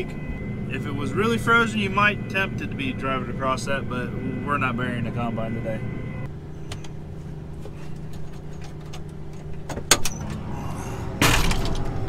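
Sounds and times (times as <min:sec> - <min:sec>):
rush of engine and outside noise: 0:00.0 - 0:12.0
cab door opening: 0:08.2 - 0:10.5.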